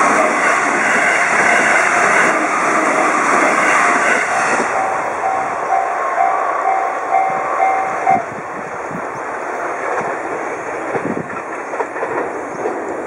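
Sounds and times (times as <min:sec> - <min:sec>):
train wheels clacking on rails: 0:00.0 - 0:08.3, 0:09.4 - 0:13.0
railroad crossing alarm ringing: 0:04.6 - 0:08.4.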